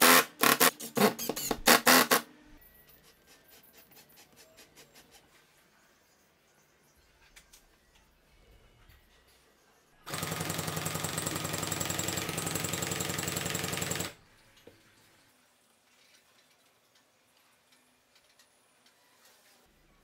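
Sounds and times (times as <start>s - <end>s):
cordless drill motor running: 10.1s - 14.2s.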